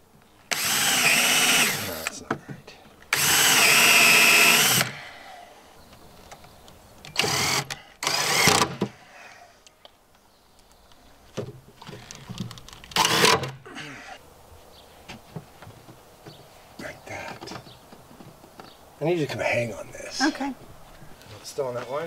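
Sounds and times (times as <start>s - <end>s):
cordless drill whining: 0.5s - 2.2s, 3.1s - 5.0s, 7.1s - 8.9s, 13.0s - 13.5s.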